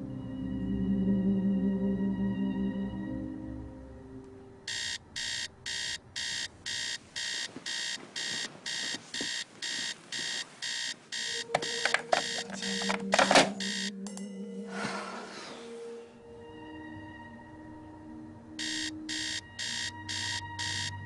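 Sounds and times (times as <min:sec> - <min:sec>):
alarm clock beeping: 0:04.7 - 0:14.4, 0:18.6 - 0:21.0.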